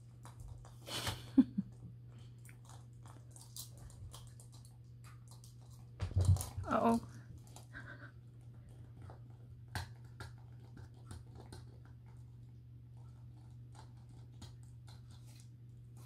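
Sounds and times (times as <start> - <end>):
puppy chewing plastic toy: 2.4 - 12.4.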